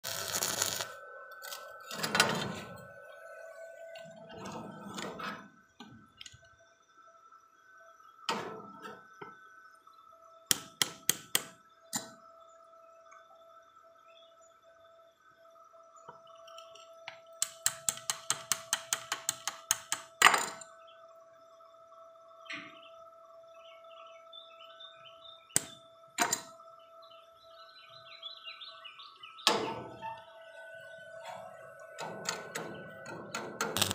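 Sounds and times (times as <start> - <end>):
welding arc crackling: 0.0 - 2.1, 33.6 - 33.9
faint hum: 0.0 - 33.9
faint steady whine: 0.0 - 33.9.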